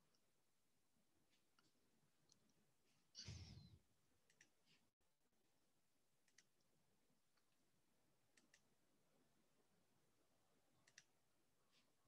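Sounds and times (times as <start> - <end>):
faint clicks: 6.2 - 6.7, 8.3 - 8.7, 10.8 - 11.1.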